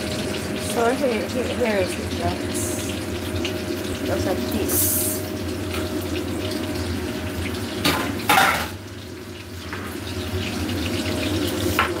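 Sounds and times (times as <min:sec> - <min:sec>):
kitchenware clattering: 0:07.8 - 0:08.8.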